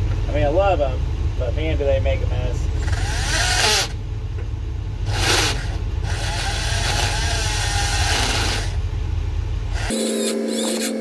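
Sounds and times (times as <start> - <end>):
low engine rumble: 0.0 - 9.9
power tool cutting steel: 2.8 - 4.0, 5.1 - 8.8, 9.7 - 11.0.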